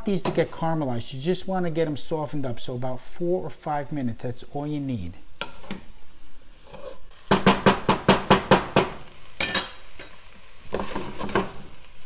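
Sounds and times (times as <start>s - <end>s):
wooden spoon knocking pot: 7.3s - 9.0s.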